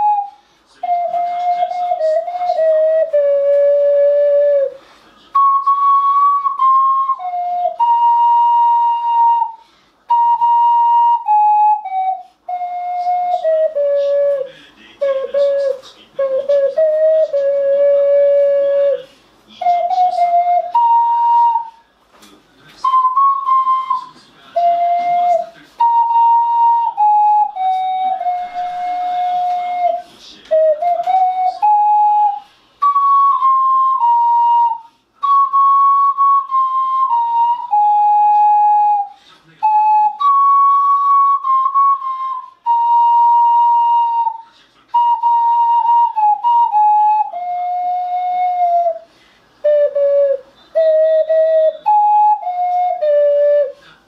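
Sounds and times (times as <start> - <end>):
small wind instrument melody: 0.0 - 21.8, 22.6 - 54.0.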